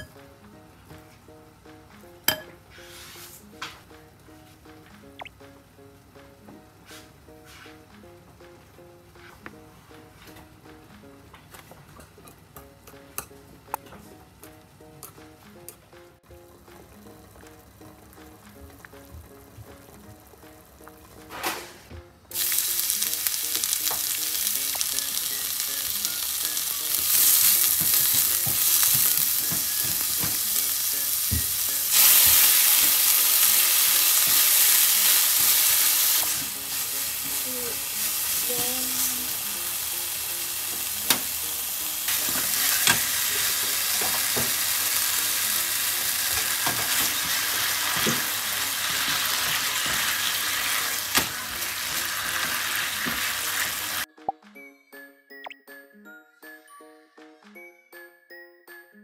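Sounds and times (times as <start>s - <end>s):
food sizzling in a pan: 2.3s - 3.5s, 16.9s - 54.1s.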